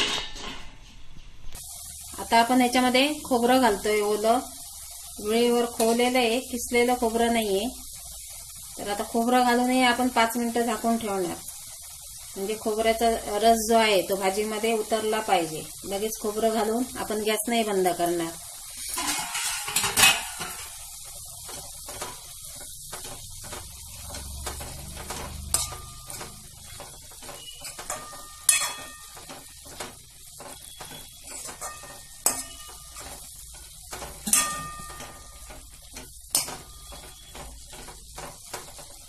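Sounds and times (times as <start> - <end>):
soft sizzle of cooking: 0.0 - 39.0
metal spoon scraping a pan: 18.7 - 38.9
spoon clinking against pan: 27.6 - 29.2, 31.3 - 33.0, 34.2 - 35.4.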